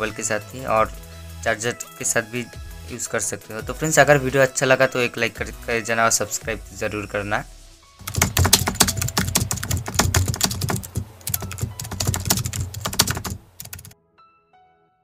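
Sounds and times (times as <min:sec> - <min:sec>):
rapid keyboard typing: 0:08.0 - 0:14.0
faint musical notes: 0:08.1 - 0:13.9.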